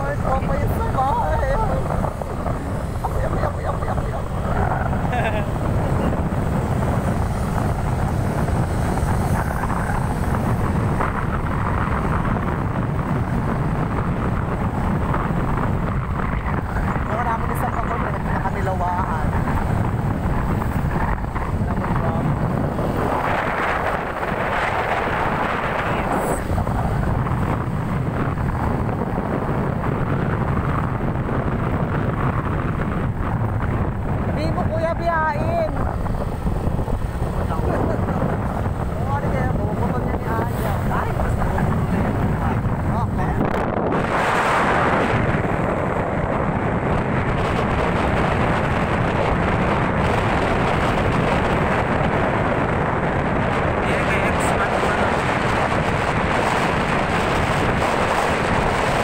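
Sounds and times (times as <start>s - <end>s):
rushing wind: 0.0s - 59.0s
vehicle running noise: 0.0s - 59.0s
wind buffeting microphone: 0.0s - 59.0s.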